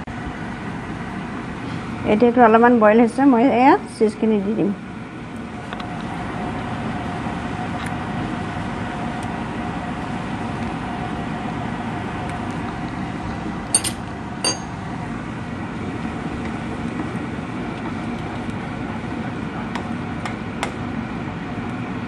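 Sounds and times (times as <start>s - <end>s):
water boiling in a pan: 4.8s - 22.0s
metal spoon clinking on pan: 13.8s - 14.8s.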